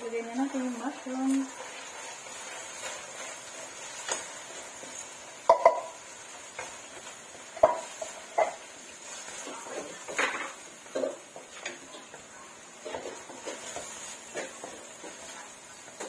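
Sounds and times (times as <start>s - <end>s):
spatula scraping a wok: 0.1s - 11.8s, 12.8s - 16.0s
spatula knocking against pan: 5.5s - 5.9s, 7.6s - 8.6s.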